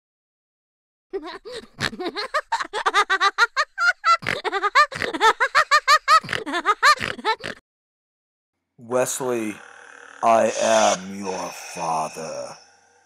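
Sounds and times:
high-pitched giggling laughter: 0:01.2 - 0:07.6.

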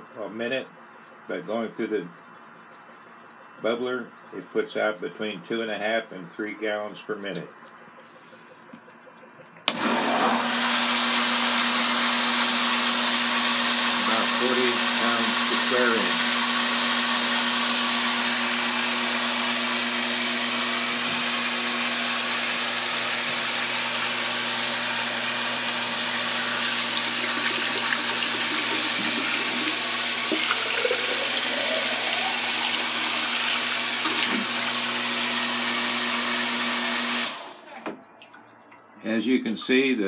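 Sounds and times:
electric water pump humming: 0:09.5 - 0:39.9.

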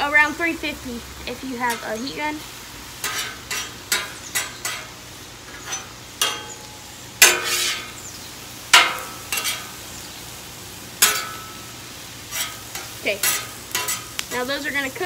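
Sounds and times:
vegetables sizzling in oil: 0:00.0 - 0:15.0
metal spatula scraping griddle: 0:03.0 - 0:09.9, 0:11.0 - 0:14.8.

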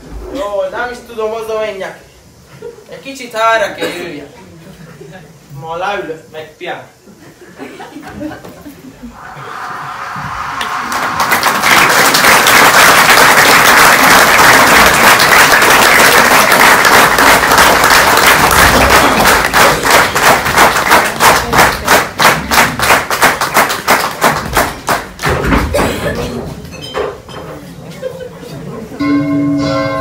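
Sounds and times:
audience applauding: 0:09.2 - 0:25.5
rhythmic clapping in unison: 0:10.6 - 0:25.9.

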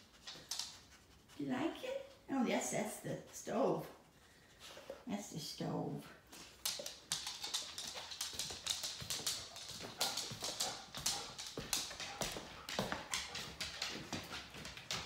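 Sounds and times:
dog claws clicking on wood floor: 0:00.0 - 0:01.0, 0:06.3 - 0:15.0.

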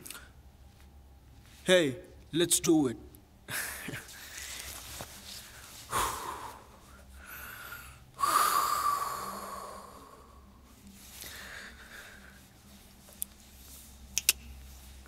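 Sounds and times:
man exhaling hard: 0:05.9 - 0:10.3.

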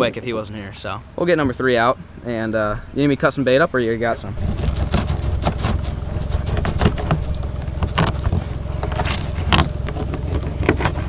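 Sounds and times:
low rumble: 0:01.5 - 0:11.0
knife scraping cutting board: 0:04.4 - 0:11.0.

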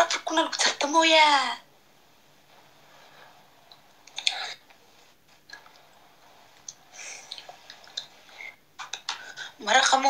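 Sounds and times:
faint hiss: 0:00.2 - 0:10.0.

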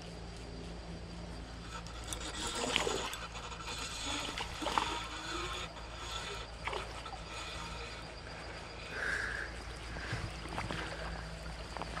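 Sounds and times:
creek water trickling: 0:01.0 - 0:12.0.

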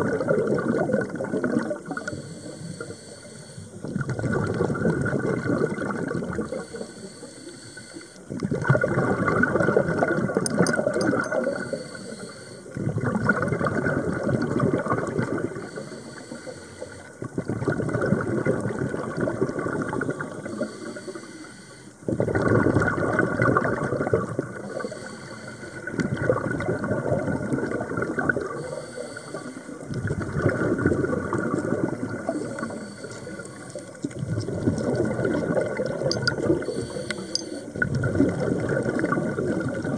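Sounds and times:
diver exhaling bubbling air: 0:00.0 - 0:03.1, 0:03.8 - 0:07.4, 0:08.3 - 0:39.9
diver inhaling through regulator: 0:01.9 - 0:04.6, 0:06.3 - 0:09.8, 0:11.3 - 0:13.0, 0:15.0 - 0:17.3, 0:19.6 - 0:23.2, 0:23.9 - 0:37.9.

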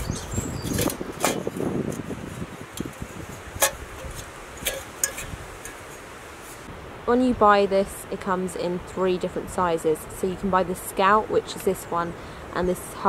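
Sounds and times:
metal pots clinking: 0:03.6 - 0:06.1.

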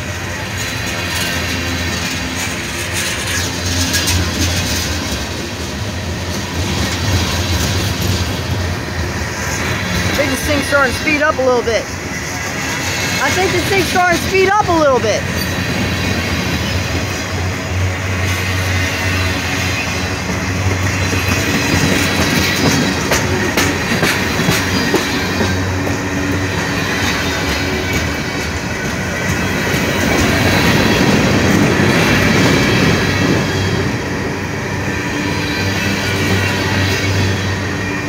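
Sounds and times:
wheels clattering over rail joints: 0:00.4 - 0:11.6, 0:15.2 - 0:33.9.

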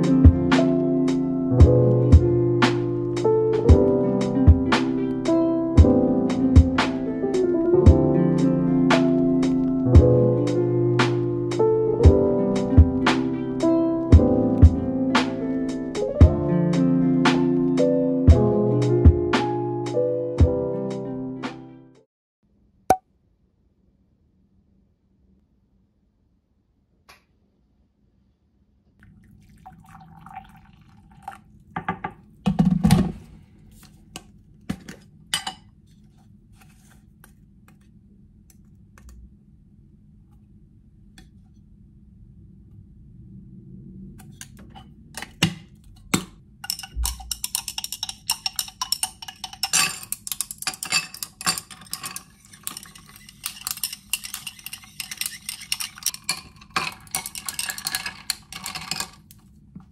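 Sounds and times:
water pouring into glass: 0:29.0 - 0:31.6
spoon tapping: 0:46.6 - 0:58.0
ice cubes clinking in glass: 0:46.6 - 0:59.2.

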